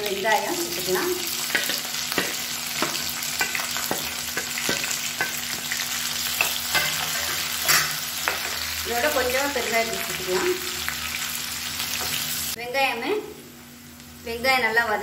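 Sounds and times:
onion sizzling in oil: 0.0 - 14.9
spatula scraping pan: 1.4 - 8.6.

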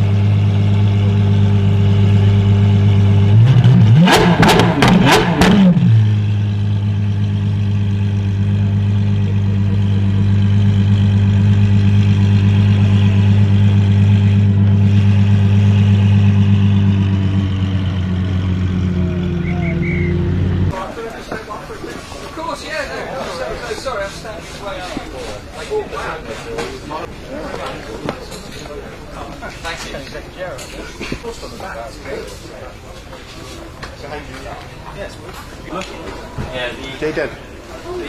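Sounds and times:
car engine idling: 0.0 - 20.8
engine throttle blips: 0.0 - 20.8.

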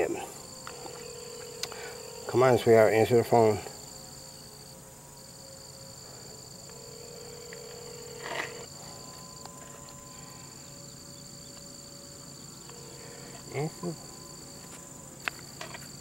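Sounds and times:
insects trilling: 0.0 - 16.0.

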